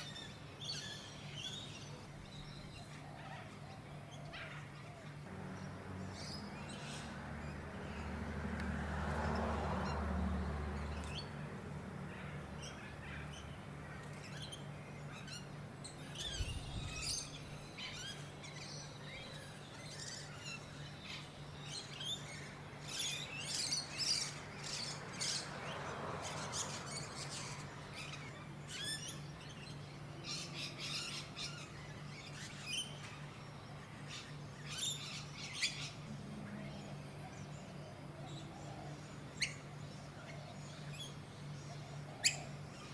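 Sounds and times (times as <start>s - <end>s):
birds chirping: 0.0s - 42.9s.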